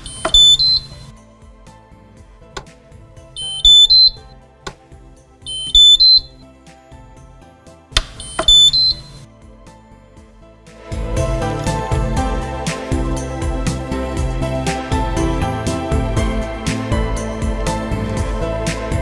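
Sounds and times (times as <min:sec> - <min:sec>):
electronic beeps rising in pitch: 0:00.0 - 0:01.1, 0:03.4 - 0:04.3, 0:05.5 - 0:06.4, 0:08.2 - 0:09.2
soft background music: 0:00.0 - 0:19.0
sharp clicks: 0:07.9 - 0:09.1.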